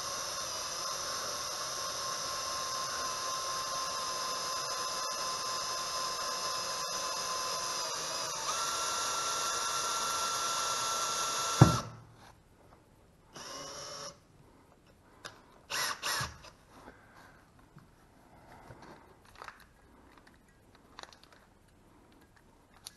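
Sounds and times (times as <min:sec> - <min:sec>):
cordless drill whining: 0:00.0 - 0:11.9, 0:13.4 - 0:14.2, 0:15.7 - 0:16.6
drill knock: 0:00.0 - 0:12.0.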